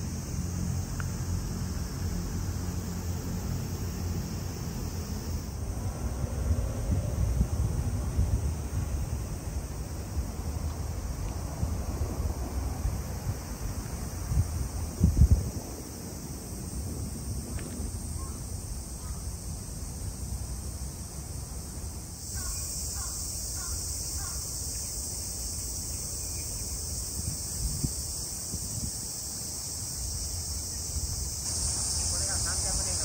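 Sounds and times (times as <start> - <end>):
cicadas buzzing: 0.0 - 33.0
wind rumble on microphone: 5.6 - 18.9, 26.4 - 29.9.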